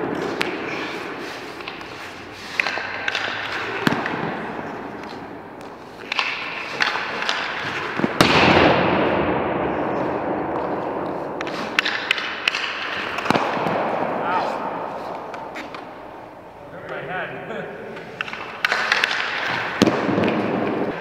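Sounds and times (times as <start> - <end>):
skate blades scraping ice: 0.0 - 8.2, 9.9 - 16.0, 17.9 - 21.0
sticks and pucks cracking: 0.1 - 8.5, 10.5 - 13.9, 14.6 - 16.0, 18.0 - 21.0.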